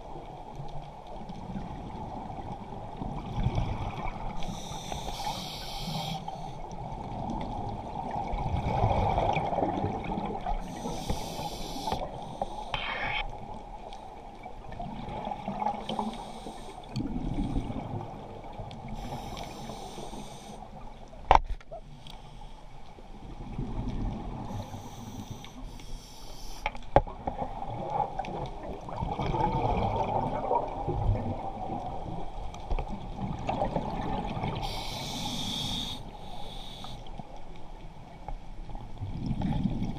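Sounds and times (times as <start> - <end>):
exhaled bubbles gurgling: 1.2 - 12.2, 14.3 - 20.8, 27.1 - 36.0, 39.0 - 39.9
regulator hiss on inhalation: 4.4 - 6.6, 10.6 - 13.2, 16.0 - 16.8, 19.0 - 20.6, 24.5 - 26.7, 34.6 - 37.1.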